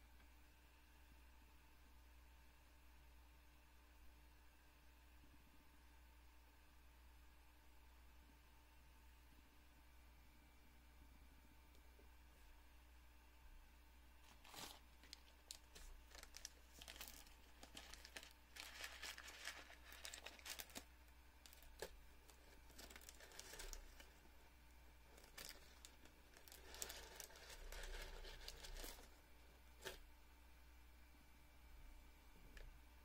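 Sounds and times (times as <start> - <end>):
cord rustling and crinkling: 14.2 - 24.2, 25.1 - 30.0
small clicks and scrapes: 14.2 - 24.2, 25.1 - 29.2, 29.8 - 30.0.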